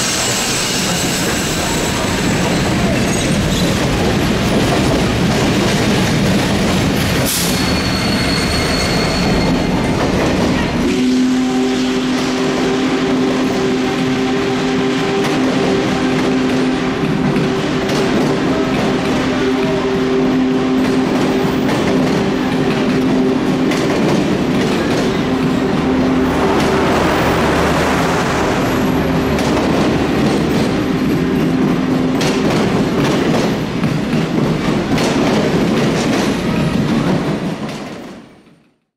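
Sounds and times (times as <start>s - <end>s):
train wheels clattering over rail joints: 0.5s - 8.0s, 20.7s - 28.4s, 29.1s - 38.5s.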